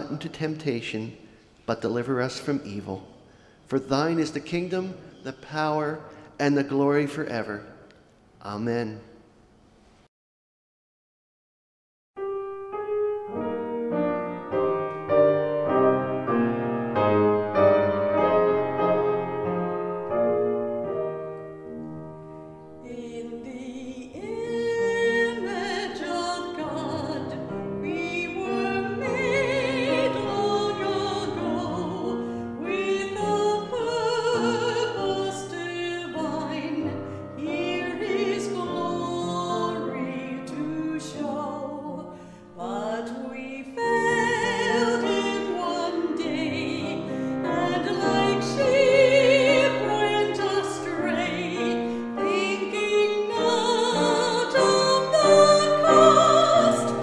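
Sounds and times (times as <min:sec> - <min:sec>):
grand piano playing: 0:12.2 - 0:57.0
woman singing with vibrato: 0:22.8 - 0:57.0.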